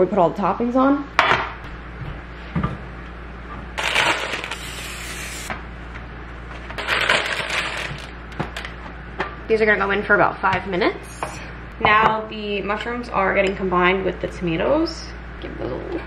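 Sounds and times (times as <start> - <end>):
cooking oil spray hissing: 4.6 - 5.5.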